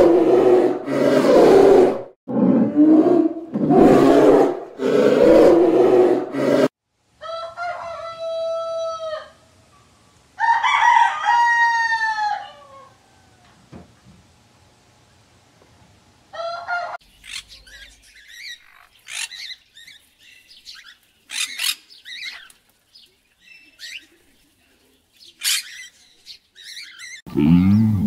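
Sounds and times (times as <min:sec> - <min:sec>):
rooster call: 0:03.9 - 0:09.4, 0:10.4 - 0:13.6, 0:16.3 - 0:17.0
macaws squawking: 0:16.4 - 0:20.0, 0:20.7 - 0:22.6, 0:25.4 - 0:27.2.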